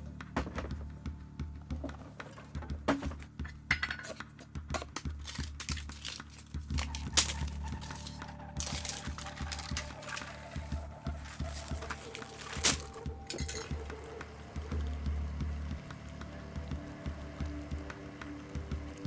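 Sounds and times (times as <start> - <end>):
metal clinks and scrapes: 13.3 - 13.8.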